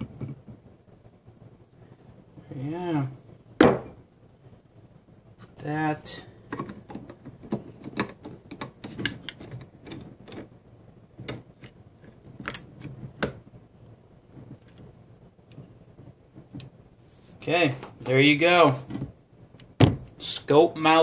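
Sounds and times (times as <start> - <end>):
sharp knocks on wooden desk: 3.6 - 3.9.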